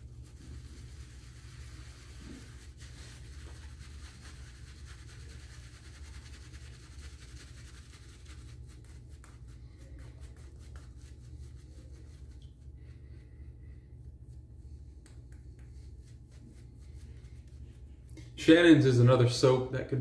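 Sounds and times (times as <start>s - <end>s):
shaving brush swishing lather: 0.0s - 18.1s
steady low hum: 0.0s - 20.0s.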